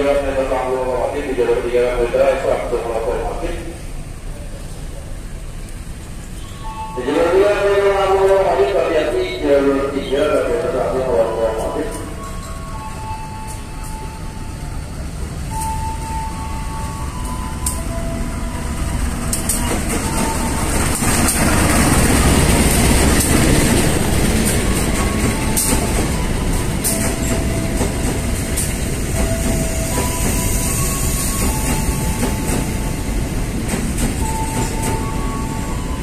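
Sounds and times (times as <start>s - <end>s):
locomotive passing at speed: 18.2s - 29.6s.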